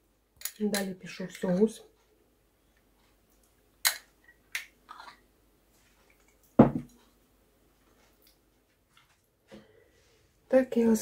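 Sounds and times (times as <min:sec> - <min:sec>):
heavy knock: 0:06.6 - 0:06.9.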